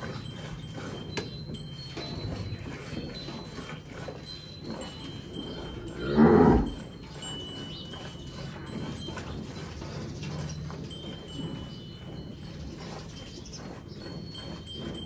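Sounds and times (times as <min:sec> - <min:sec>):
cow mooing: 0:05.4 - 0:06.9.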